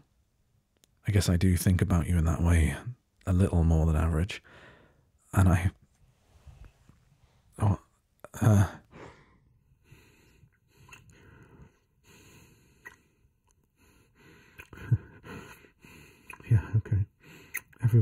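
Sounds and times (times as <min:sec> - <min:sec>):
man breathing and sighing: 0:04.4 - 0:05.1, 0:08.2 - 0:17.8.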